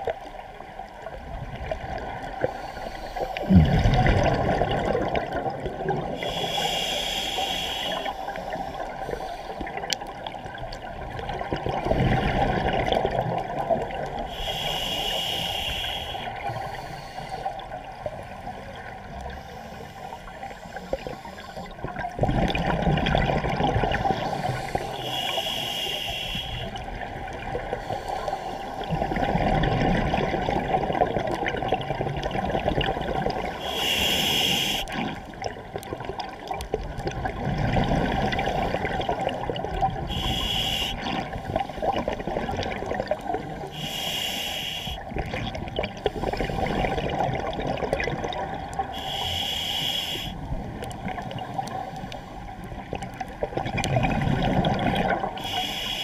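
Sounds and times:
bubbling exhaled air: 1.7s - 9.9s, 11.2s - 16.8s, 20.8s - 51.9s, 53.0s - 56.0s
hissing regulator inhalation: 6.2s - 9.6s, 14.3s - 17.5s, 24.2s - 26.8s, 33.6s - 35.0s, 40.0s - 41.2s, 43.6s - 45.0s, 49.0s - 50.4s, 55.4s - 56.0s.

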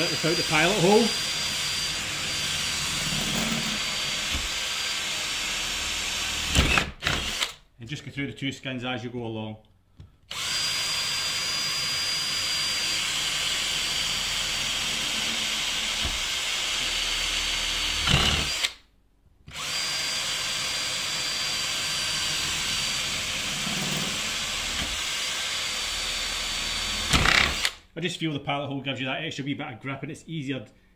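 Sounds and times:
power drill whining: 0.0s - 7.6s, 10.3s - 18.8s, 19.5s - 27.8s.

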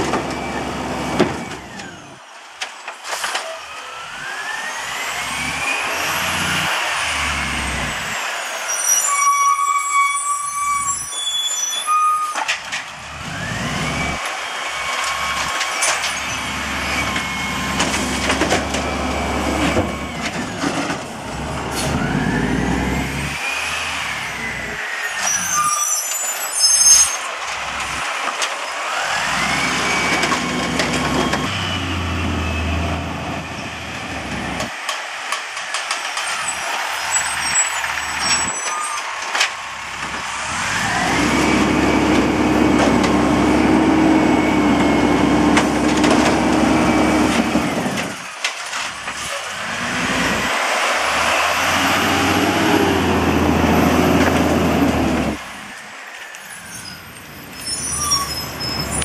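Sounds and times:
garbage truck diesel engine revving: 4.0s - 8.5s, 13.0s - 15.6s, 16.2s - 25.4s, 28.8s - 34.7s, 39.6s - 48.2s, 48.9s - 55.8s.

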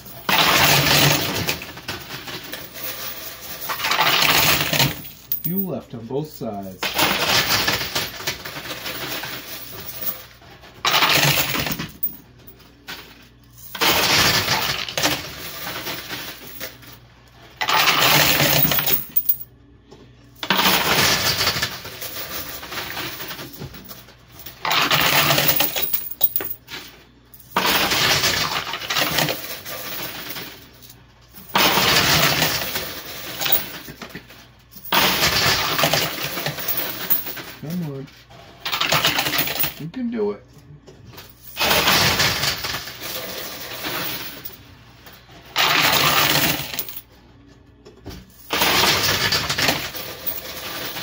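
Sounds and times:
coins clattering in coin pusher: 0.0s - 5.8s, 6.4s - 19.4s, 20.4s - 39.9s, 41.2s - 47.1s, 48.2s - 51.0s.

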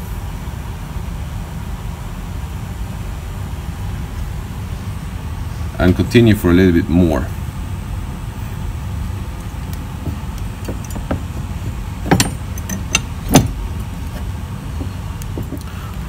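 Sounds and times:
steady low hum: 0.0s - 16.0s
metal bars knocking on plastic tub: 10.0s - 13.6s.

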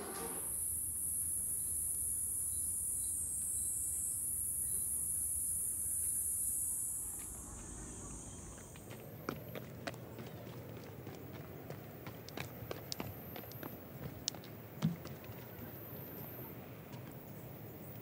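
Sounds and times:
cicadas chorus: 0.0s - 10.0s.

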